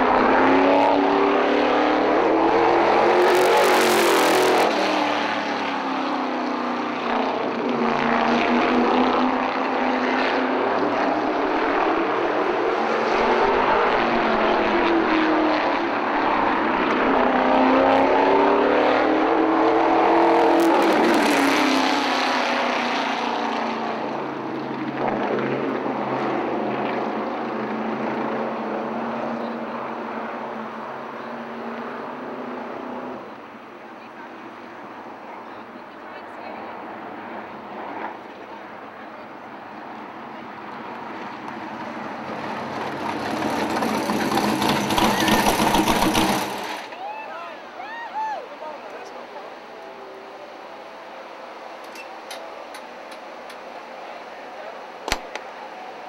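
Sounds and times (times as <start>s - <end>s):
race car engine revving: 0.0s - 33.4s, 40.0s - 46.9s.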